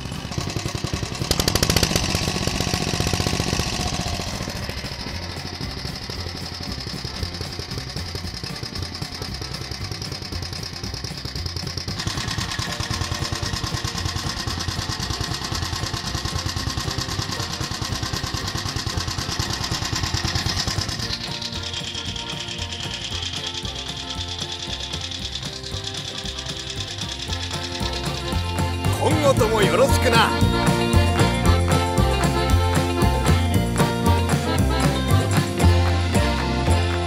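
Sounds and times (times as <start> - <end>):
single-cylinder engine chugging: 0.0 - 37.0.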